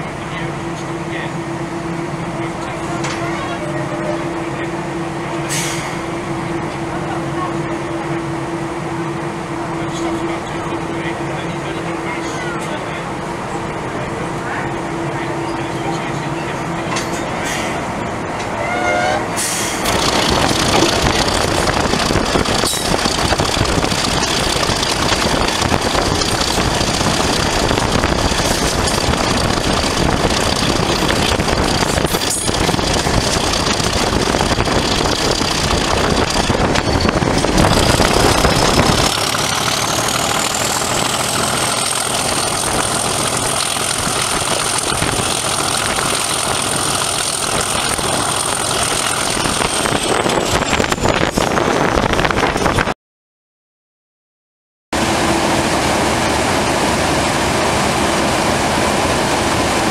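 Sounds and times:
diesel locomotive engine rumble: 0.0s - 52.9s, 55.0s - 59.9s
high turbocharger whistle: 18.6s - 19.7s.

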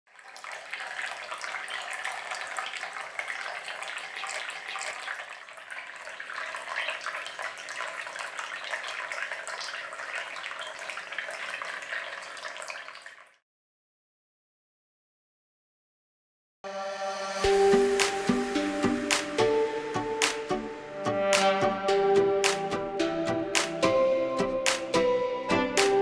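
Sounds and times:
fountain water trickling and splashing: 0.1s - 13.4s.

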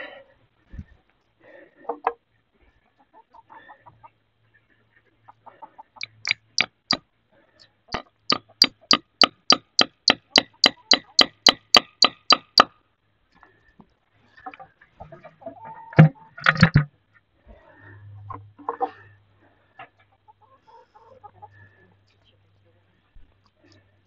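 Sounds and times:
hammer tapping wood: 6.0s - 7.0s, 8.0s - 12.7s.

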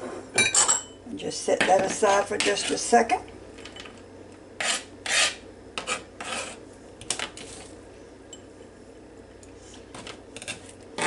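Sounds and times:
knife scraping into glass bowl: 4.6s - 6.6s.

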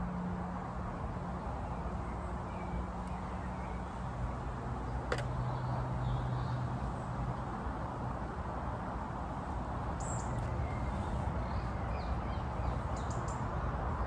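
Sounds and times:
small birds chirping: 1.4s - 7.5s, 9.3s - 14.0s.

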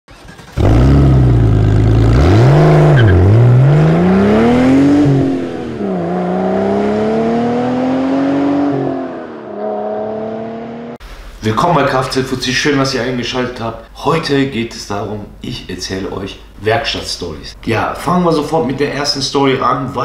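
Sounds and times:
car engine revving: 0.1s - 11.0s.

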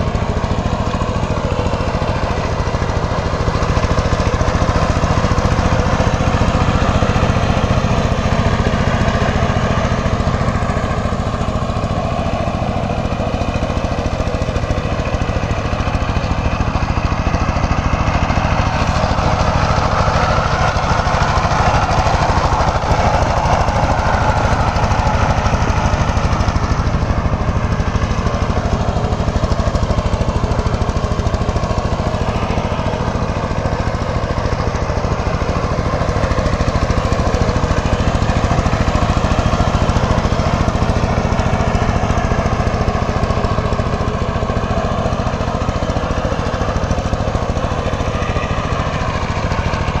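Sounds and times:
diesel engine chugging: 0.0s - 50.0s.

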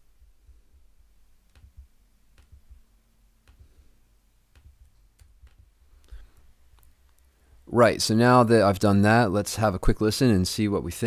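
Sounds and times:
computer mouse clicks: 1.5s - 2.8s, 3.4s - 3.8s, 4.5s - 7.3s.

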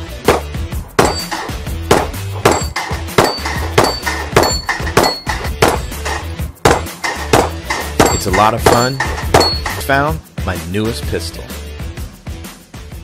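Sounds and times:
background music with low beat: 0.0s - 13.0s
rapid pistol fire: 0.3s - 5.9s
steel plate targets ringing: 1.0s - 6.0s, 6.7s - 9.9s.

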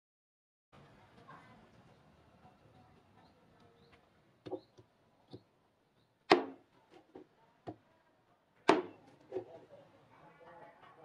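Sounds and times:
knife chopping meat on wood: 6.3s - 6.6s, 8.7s - 9.0s.

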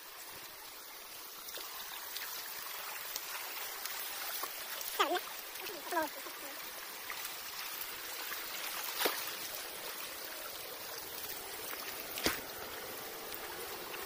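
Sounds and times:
stream trickling over rocks: 0.0s - 14.0s.

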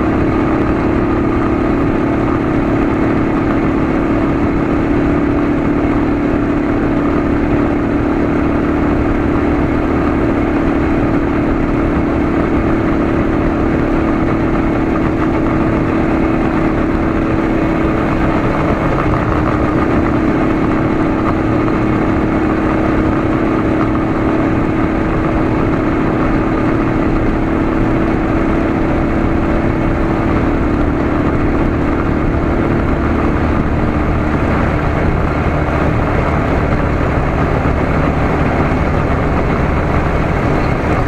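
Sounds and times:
motorcycle engine running: 0.0s - 41.0s
wind and road noise: 0.0s - 41.0s.

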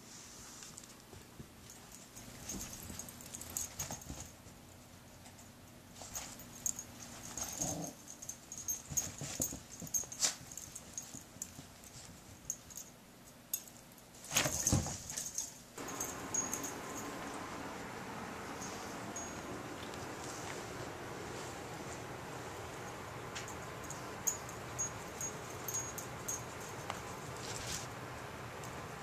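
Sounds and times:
paws scuffling on carpet: 8.5s - 12.5s, 14.3s - 28.8s.

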